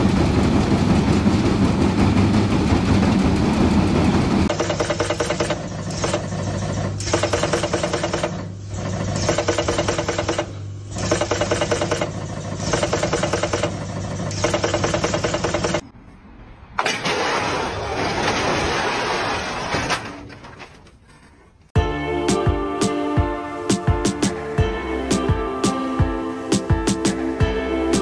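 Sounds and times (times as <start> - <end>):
machine mechanical clatter: 0.0 - 15.8
machine steady hum: 0.0 - 15.8.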